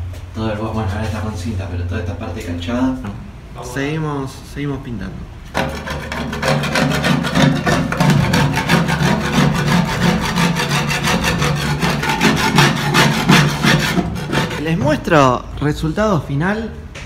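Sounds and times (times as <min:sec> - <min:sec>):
tool scraping paint off glass: 0:05.5 - 0:14.9.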